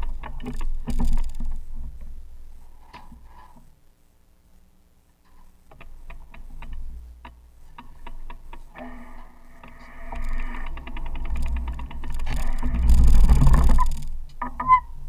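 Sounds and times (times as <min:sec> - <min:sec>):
steady hum: 0:00.0 - 0:15.0
bicycle freewheel ticking: 0:10.0 - 0:14.2.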